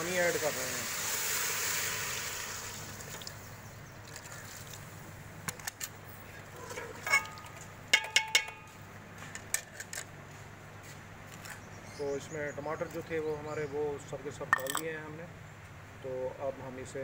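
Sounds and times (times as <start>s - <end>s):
ladle clinking against metal pot: 6.8s - 8.7s, 14.5s - 14.8s.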